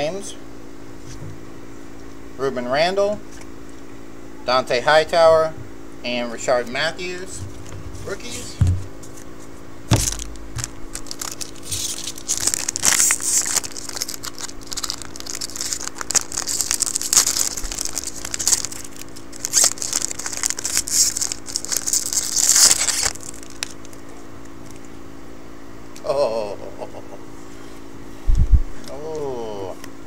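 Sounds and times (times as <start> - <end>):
foil wrapper crinkling: 9.0 - 24.9
thump: 9.9 - 10.3.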